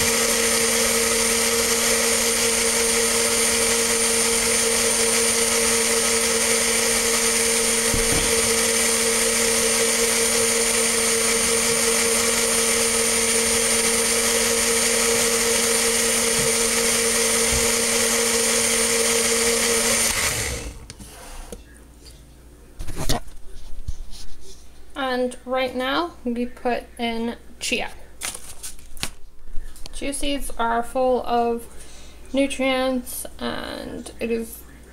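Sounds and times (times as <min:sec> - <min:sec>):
blender motor running: 0:00.0 - 0:21.5.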